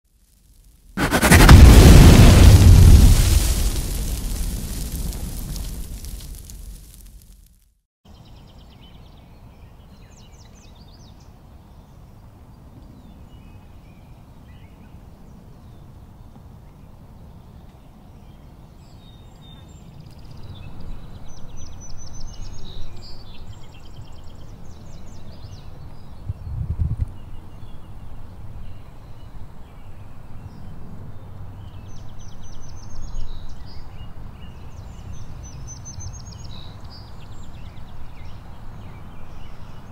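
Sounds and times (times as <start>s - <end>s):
wind on microphone: 26.2s - 27.2s.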